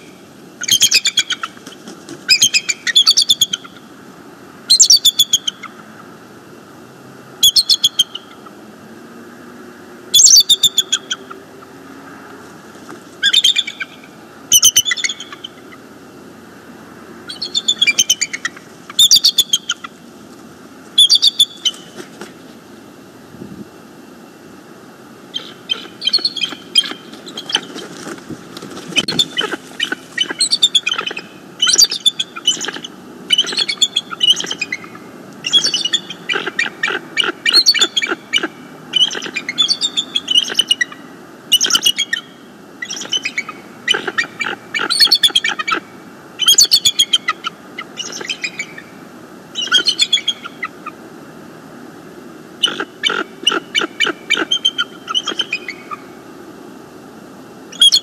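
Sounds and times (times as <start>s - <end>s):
eagle chittering calls: 0.0s - 3.9s, 4.7s - 5.8s, 7.4s - 8.5s, 10.1s - 11.7s, 13.2s - 15.9s, 17.2s - 20.0s, 21.0s - 22.0s, 25.3s - 27.9s, 28.9s - 51.0s, 52.6s - 56.2s, 57.7s - 58.0s.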